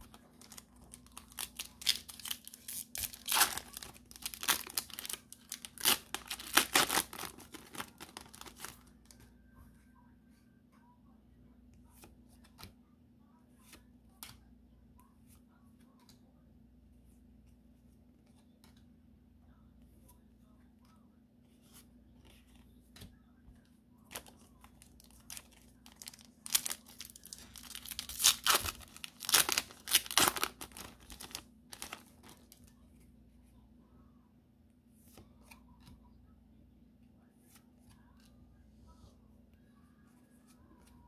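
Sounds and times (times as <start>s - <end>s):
foil wrapper tearing and crinkling: 0.3s - 8.8s, 24.2s - 32.5s.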